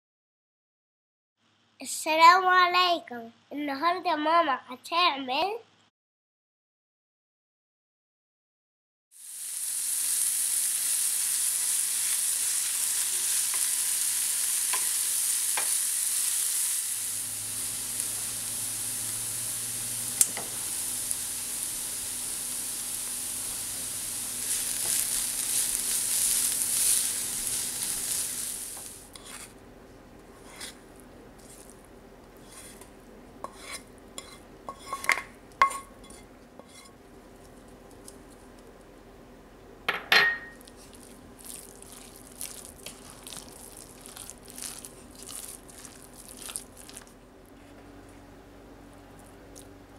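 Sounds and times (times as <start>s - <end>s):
onion sizzling in a frying pan: 9.1s - 29.6s, 30.4s - 36.9s, 40.5s - 47.1s
utensil clinking on cookware: 33.5s - 36.9s, 39.9s - 40.6s.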